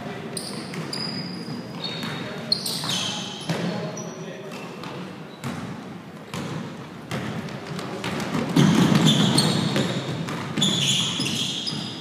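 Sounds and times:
court noise: 0.0 - 12.0
sneakers squeaking: 0.3 - 12.0
basketball bouncing on hardwood: 6.3 - 11.0.

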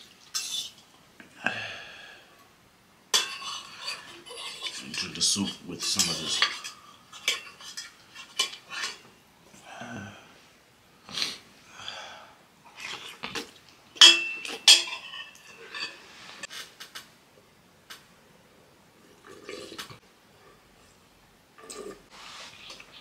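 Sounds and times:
fork clinking against metal pot: 3.2 - 9.0, 14.0 - 16.0
noodle slurping: 19.2 - 20.0.

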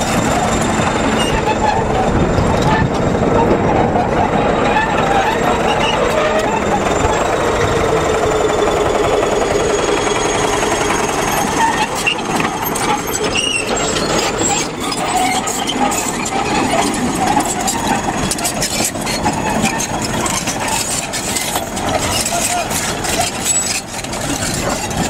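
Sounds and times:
bulldozer diesel engine running: 0.0 - 25.0.

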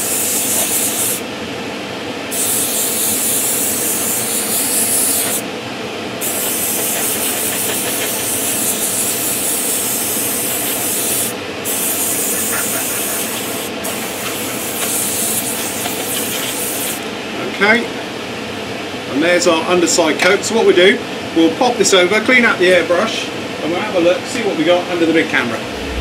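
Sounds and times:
extractor fans running: 0.0 - 19.8, 23.2 - 26.0
airbrush spraying hiss: 6.2 - 17.0.

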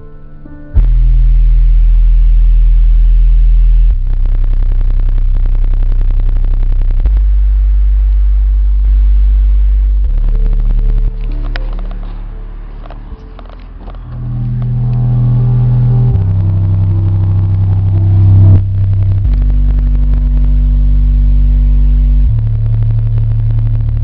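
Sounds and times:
deep subwoofer bass tones: 0.0 - 24.0
buzzy pulsing: 9.0 - 23.8.

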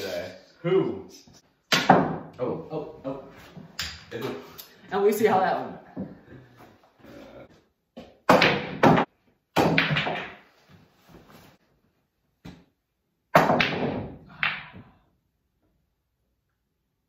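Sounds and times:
billiard balls clacking: 8.0 - 10.5.

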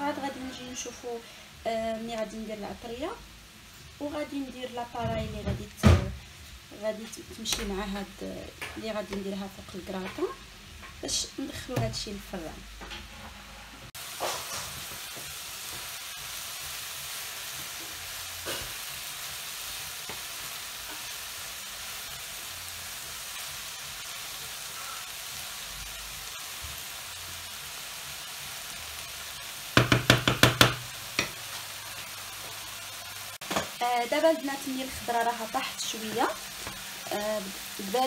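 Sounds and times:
vegetables sizzling in frying pan: 0.0 - 12.9, 13.8 - 38.0
wooden spatula knocking pan: 29.8 - 31.4.

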